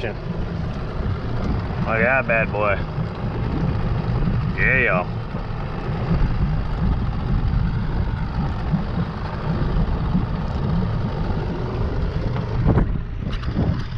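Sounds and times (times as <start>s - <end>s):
wind buffeting microphone: 0.0s - 13.9s.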